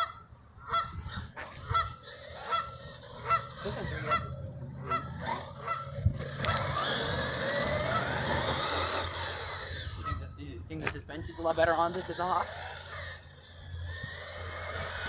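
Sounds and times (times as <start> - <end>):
electric motor whine: 0.0 - 10.4, 11.5 - 15.0
geese honking: 0.0 - 10.4.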